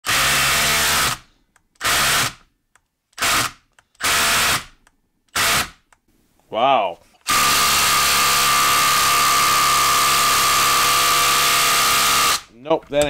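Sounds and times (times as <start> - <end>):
impact driver hammering: 3.2 - 5.8, 7.3 - 12.4.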